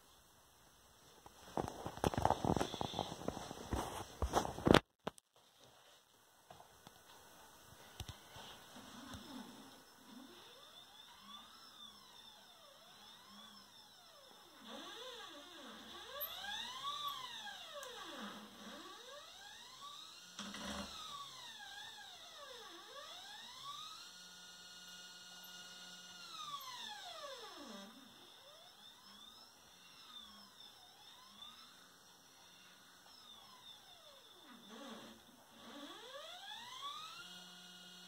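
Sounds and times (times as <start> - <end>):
stepper motors whining: 8.9 - 38.0.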